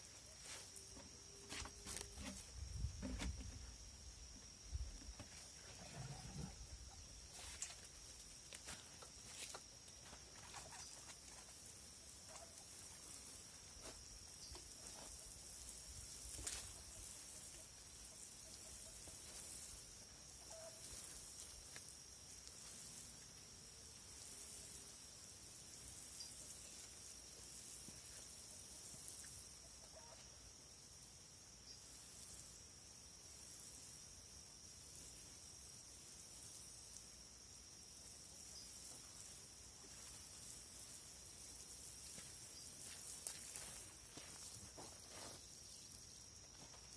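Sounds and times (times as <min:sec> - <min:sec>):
water sprinkling onto soil: 0:07.3 - 0:29.6, 0:35.0 - 0:46.9.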